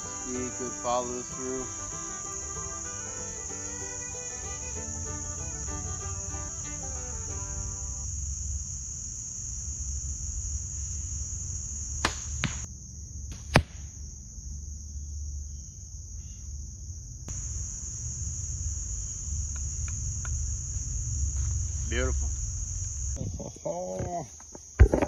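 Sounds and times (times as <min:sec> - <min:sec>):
crickets trilling: 0:00.0 - 0:25.0
arrow striking target: 0:12.0 - 0:12.7, 0:13.3 - 0:13.9
bowstring snap: 0:12.0 - 0:12.7, 0:13.3 - 0:14.0.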